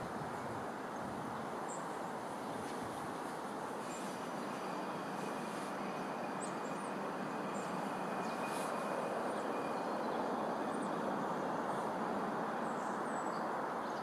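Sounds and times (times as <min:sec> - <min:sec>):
electric train running: 0:03.1 - 0:13.2
faint bird chirps: 0:03.8 - 0:14.0.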